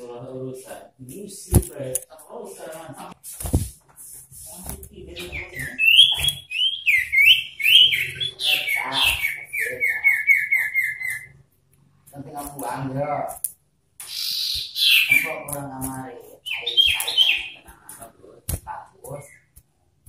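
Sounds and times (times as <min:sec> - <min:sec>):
bird fast trill: 0:05.2 - 0:11.4, 0:14.1 - 0:15.5.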